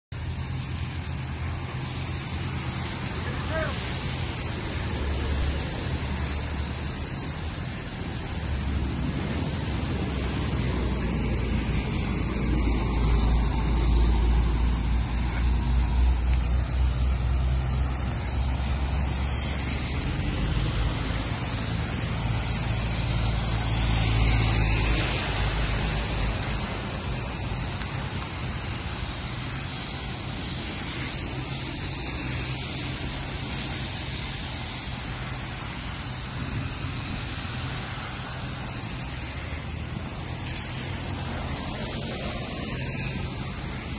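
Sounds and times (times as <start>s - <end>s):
traffic on wet road: 0.1s - 43.9s.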